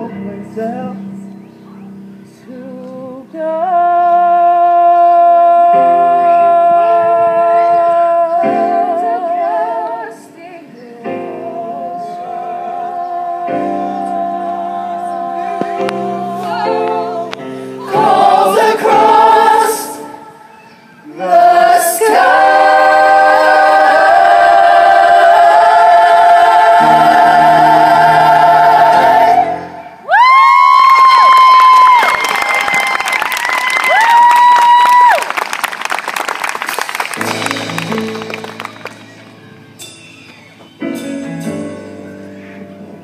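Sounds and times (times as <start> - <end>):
live accompaniment: 0.0 - 43.0
young voices singing in harmony: 2.4 - 30.2.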